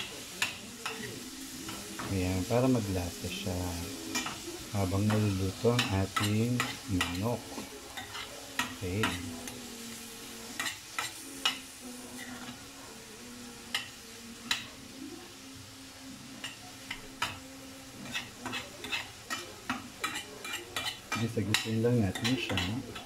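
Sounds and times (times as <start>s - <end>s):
food sizzling in a pan: 0.0s - 23.0s
metal spoon scraping a pan: 0.3s - 9.7s, 10.3s - 12.6s, 16.4s - 23.0s.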